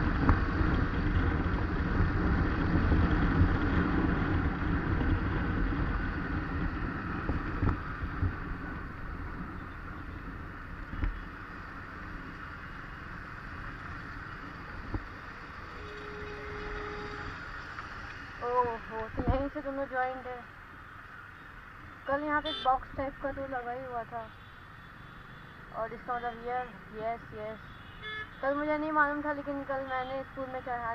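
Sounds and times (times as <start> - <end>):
wind rushing over microphone: 0.0 - 12.3
road noise: 0.0 - 30.9.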